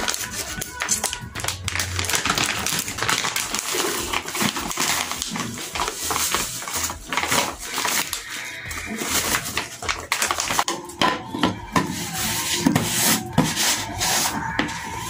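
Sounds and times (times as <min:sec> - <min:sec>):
plastic bag crinkling: 0:00.0 - 0:10.7
scissors snipping plastic bag: 0:00.0 - 0:10.8.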